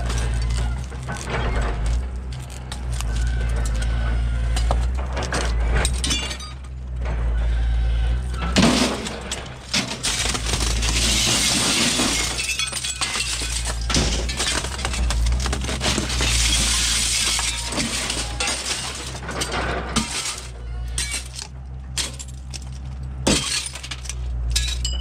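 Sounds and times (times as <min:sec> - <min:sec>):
glass panes shattering: 0:05.8 - 0:06.7, 0:08.5 - 0:25.0
metal frames clinking: 0:11.8 - 0:25.0.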